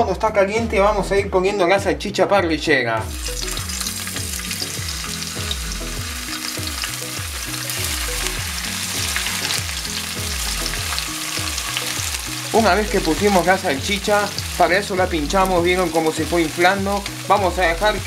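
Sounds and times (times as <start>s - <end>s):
sausage sizzling in hot oil: 3.1s - 18.0s.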